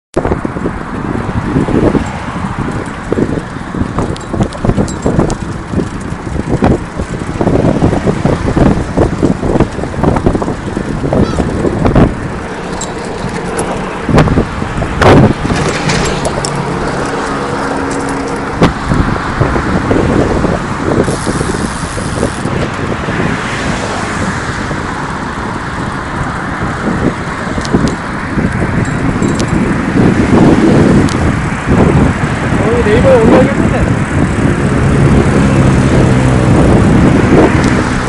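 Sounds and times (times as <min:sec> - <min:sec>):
bicycle rolling noise: 0:00.2 - 0:38.0
busy road traffic: 0:00.2 - 0:38.0
bike knocks and rattles: 0:01.6 - 0:19.8, 0:27.2 - 0:31.4.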